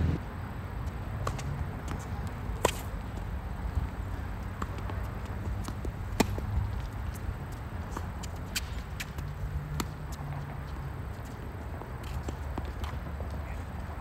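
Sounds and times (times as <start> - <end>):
low rumble: 0.0 - 0.3
tennis ball hits: 2.6 - 2.9, 4.5 - 6.5.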